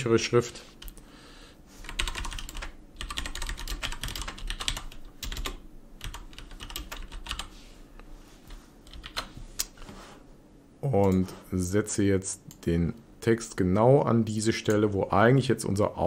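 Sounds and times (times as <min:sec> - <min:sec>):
typing on keyboard: 0:01.8 - 0:07.5, 0:08.8 - 0:09.3.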